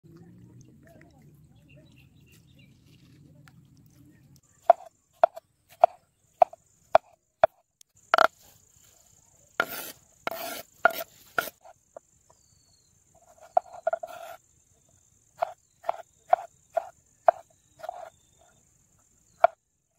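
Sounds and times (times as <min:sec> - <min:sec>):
knife chopping on wooden board: 0:04.6 - 0:07.6, 0:09.6 - 0:11.6, 0:13.4 - 0:14.4, 0:15.4 - 0:18.1
knife slicing tomato: 0:09.6 - 0:11.7, 0:13.2 - 0:14.4, 0:15.4 - 0:18.1
scraping food into wooden bowl: 0:09.6 - 0:11.7, 0:13.2 - 0:14.4, 0:15.4 - 0:18.1.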